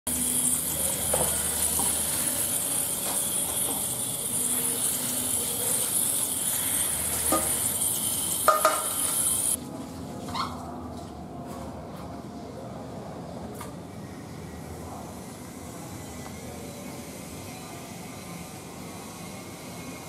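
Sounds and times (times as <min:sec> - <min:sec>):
water spraying from hose nozzle: 0:00.1 - 0:09.6.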